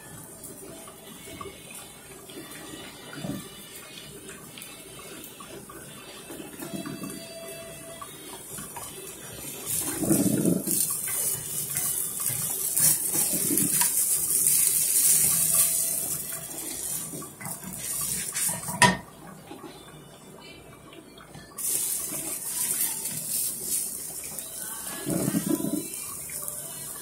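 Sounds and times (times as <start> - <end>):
pancake sizzling in oil: 0.0 - 19.1, 21.6 - 27.0
spatula scraping a pan: 9.7 - 19.0.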